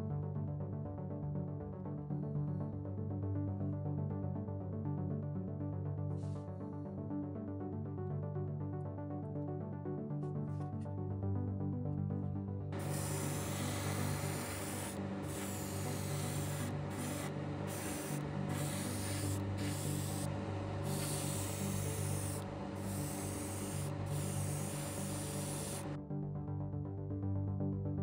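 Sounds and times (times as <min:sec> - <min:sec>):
background music: 0:00.0 - 0:28.0
airbrush air hiss: 0:12.8 - 0:26.0.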